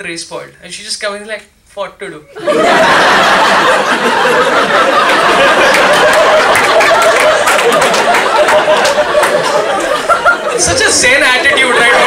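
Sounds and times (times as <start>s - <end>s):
audience laughing loudly: 2.4s - 12.0s
scattered clapping: 5.0s - 9.9s.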